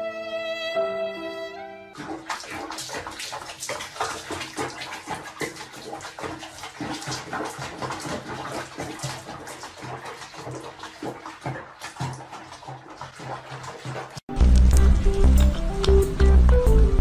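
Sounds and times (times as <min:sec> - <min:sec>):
water splashing in a basin: 0:01.9 - 0:14.8.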